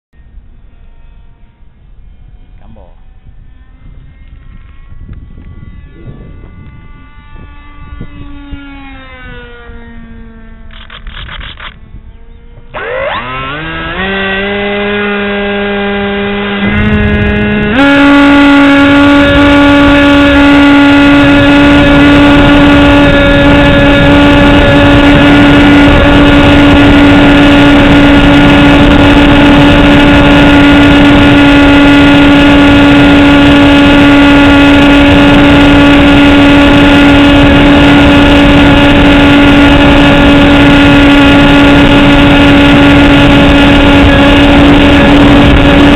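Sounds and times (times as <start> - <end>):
model airplane motor whining: 0.2 - 45.9
wind rushing over microphone: 1.4 - 45.9.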